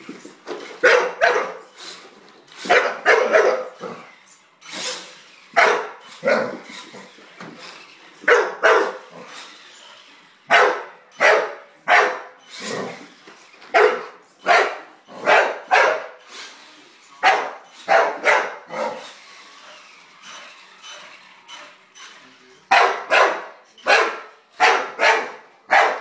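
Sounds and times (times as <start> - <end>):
dog barking: 0.8 - 1.6, 2.7 - 3.8, 5.6 - 6.6, 8.3 - 9.0, 10.5 - 12.3, 13.8 - 16.2, 17.2 - 19.0, 22.7 - 26.0.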